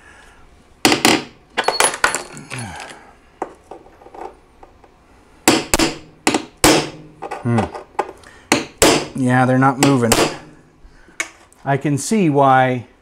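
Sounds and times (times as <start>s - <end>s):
hammer striking metal punch: 5.4s - 7.3s, 8.5s - 10.6s.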